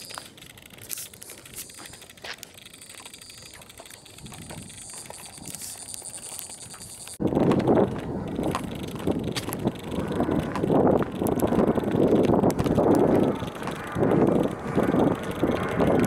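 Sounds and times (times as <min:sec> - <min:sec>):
wind buffeting microphone: 0:03.4 - 0:16.0.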